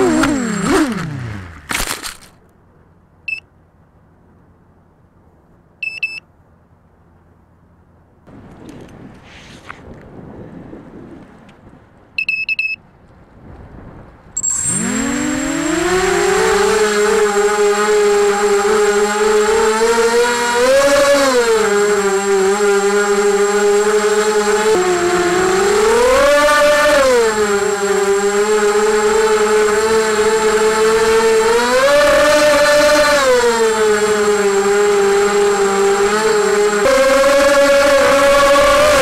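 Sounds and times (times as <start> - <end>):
quadcopter motors whining: 0.0 - 2.2, 14.4 - 39.0
short beep: 5.8 - 6.2, 12.2 - 12.8.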